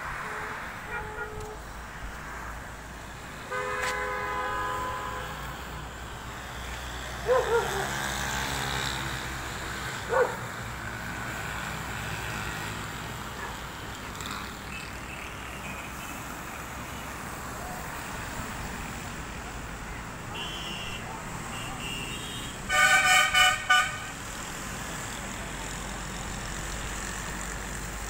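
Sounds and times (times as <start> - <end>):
traffic on wet road: 0.0 - 28.0
dog barking: 7.2 - 8.0, 10.1 - 10.5, 13.4 - 13.6.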